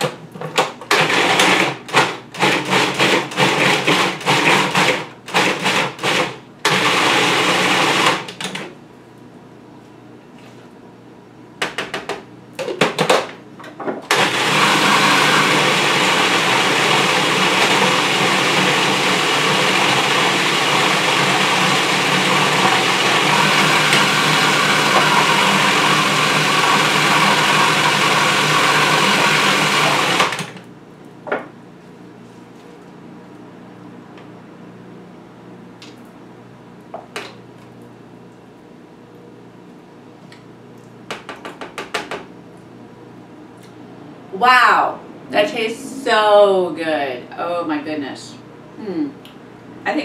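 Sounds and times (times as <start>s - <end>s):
food processor motor running: 0.9s - 8.5s, 14.1s - 30.7s.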